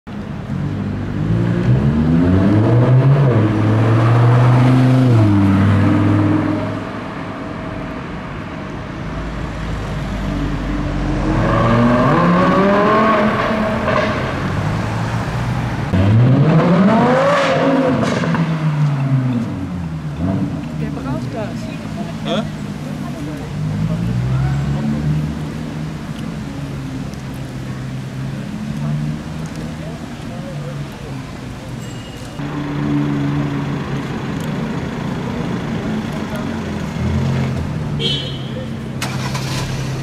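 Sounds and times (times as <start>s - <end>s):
sports car engine accelerating: 15.9s - 20.9s.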